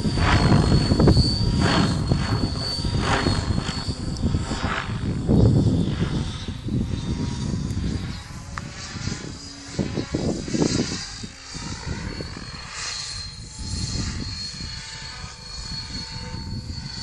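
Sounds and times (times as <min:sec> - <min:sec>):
low rumbling gusts: 0:00.0 - 0:15.0
rc helicopter whine: 0:00.0 - 0:17.0.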